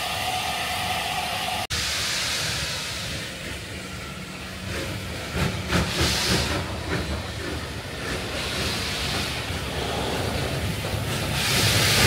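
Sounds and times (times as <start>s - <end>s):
steam hissing: 0.0s - 12.0s
wheels rumbling on rails: 3.0s - 12.0s.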